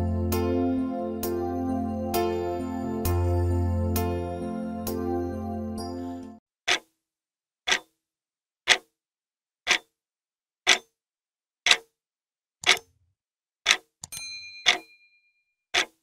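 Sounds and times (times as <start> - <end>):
clock ticking: 6.7 - 6.9, 7.7 - 7.9, 8.7 - 8.9, 9.7 - 9.9, 10.7 - 11.0, 11.7 - 11.9, 12.6 - 12.9, 13.6 - 15.0, 15.7 - 16.0.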